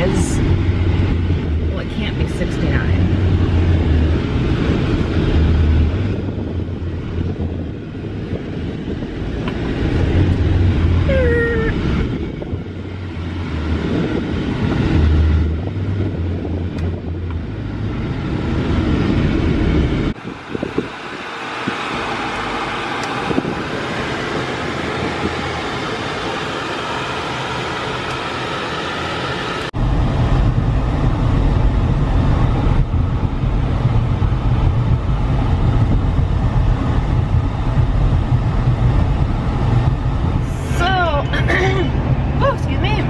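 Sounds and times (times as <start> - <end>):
tyre and road noise: 0.0 - 43.0
wind rumble over microphone: 0.0 - 43.0.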